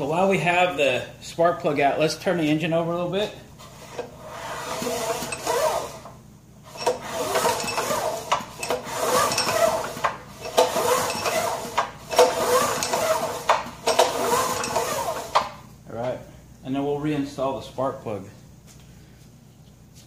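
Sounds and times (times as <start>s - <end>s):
pull-starter rope whirring: 3.6s - 15.6s.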